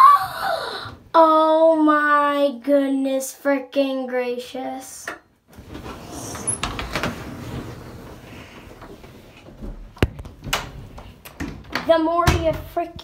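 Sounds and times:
closet door opening: 0:05.5 - 0:12.6.

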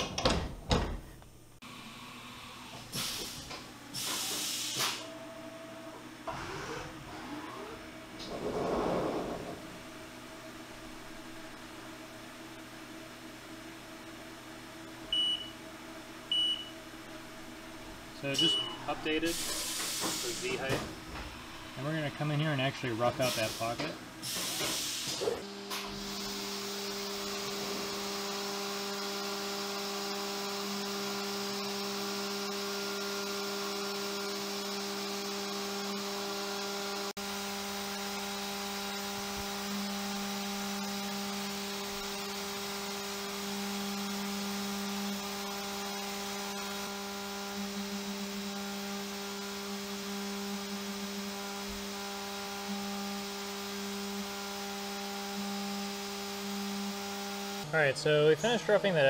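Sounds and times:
milling machine cutting metal: 0:25.5 - 0:57.7.

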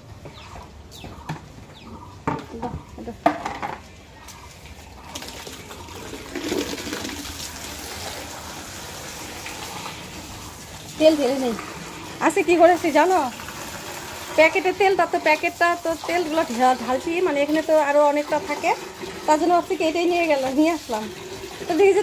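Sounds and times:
knocks and clatters: 0:02.2 - 0:04.0
water gushing and splashing: 0:04.9 - 0:22.0.

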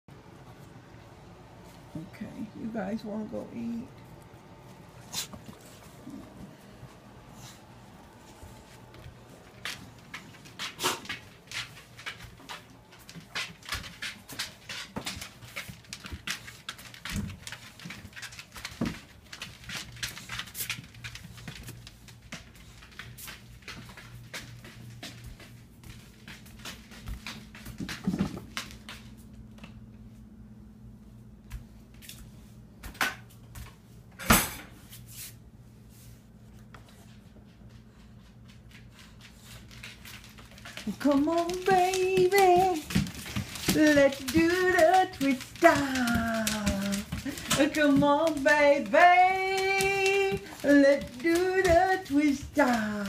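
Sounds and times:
faint low hum: 0:00.1 - 0:53.0
scratchy clicks and rustles: 0:38.2 - 0:53.0.

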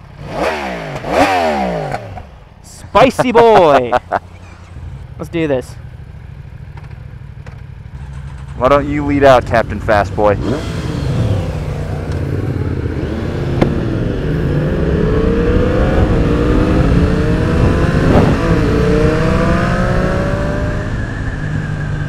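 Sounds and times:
motorcycle engine accelerating: 0:00.0 - 0:22.0
rushing wind noise: 0:10.4 - 0:22.0.

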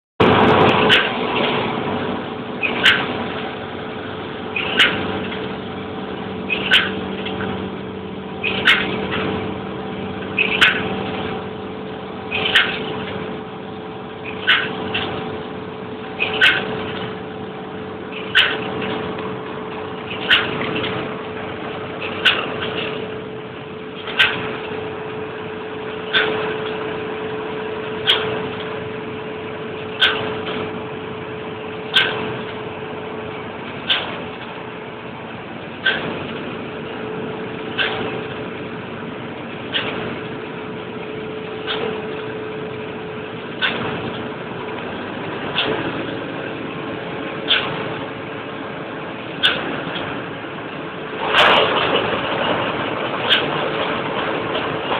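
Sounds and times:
combine harvester drone: 0:00.2 - 0:54.9
sharp click: 0:02.6 - 0:03.1, 0:06.5 - 0:07.4, 0:10.4 - 0:10.9, 0:16.2 - 0:17.1, 0:18.2 - 0:19.3, 0:20.1 - 0:21.0, 0:22.0 - 0:23.0, 0:24.0 - 0:24.5, 0:26.1 - 0:26.8, 0:30.0 - 0:30.6, 0:31.9 - 0:32.5, 0:33.8 - 0:34.5, 0:35.8 - 0:36.2, 0:43.6 - 0:44.2, 0:47.5 - 0:47.8.

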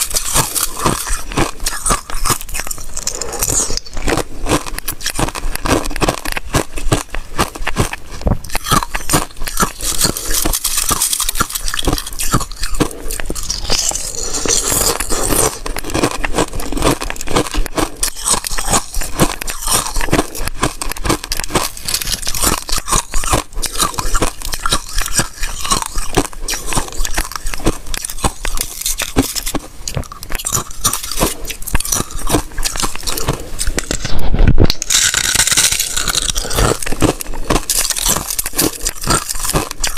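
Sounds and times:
ice being chewed and crunched: 0:00.0 - 0:39.9.

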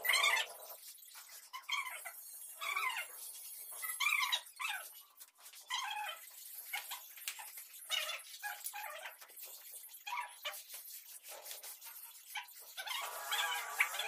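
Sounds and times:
high-pitched animal calls: 0:12.2 - 0:14.0.

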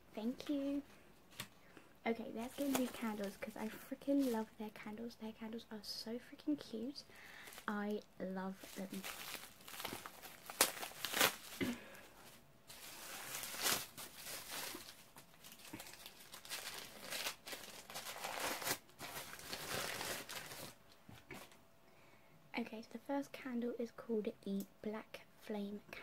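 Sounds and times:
paper crinkling and tearing: 0:02.4 - 0:03.5, 0:08.6 - 0:11.8, 0:12.7 - 0:20.8.

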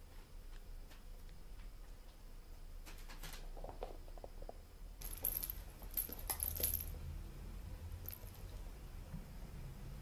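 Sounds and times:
metallic jingling of cat toys: 0:05.0 - 0:07.0, 0:08.0 - 0:08.5.

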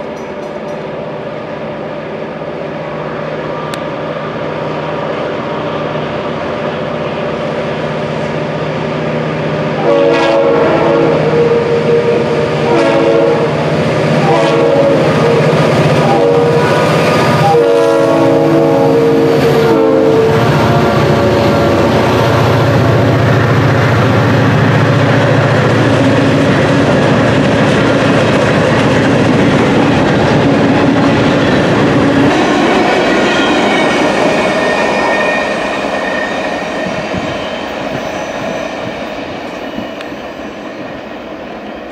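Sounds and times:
locomotive air horn: 0:09.8 - 0:23.0.

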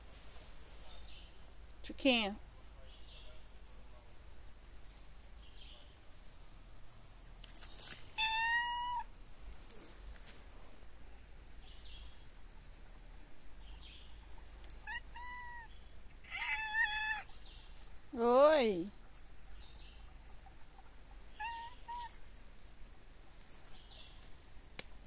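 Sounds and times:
cat meowing: 0:08.2 - 0:09.1, 0:14.8 - 0:15.7, 0:16.3 - 0:17.3, 0:21.4 - 0:22.2.

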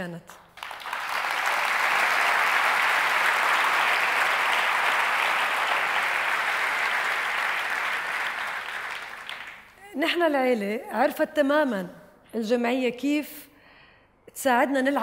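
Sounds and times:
large audience applauding: 0:00.4 - 0:09.8.

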